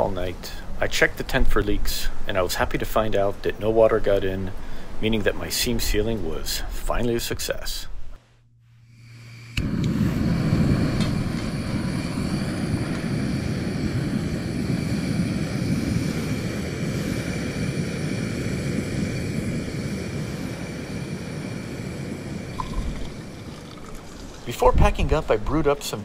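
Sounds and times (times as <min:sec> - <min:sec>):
wind blowing across microphone: 0:09.6 - 0:26.0
faint high whistle: 0:22.5 - 0:23.0.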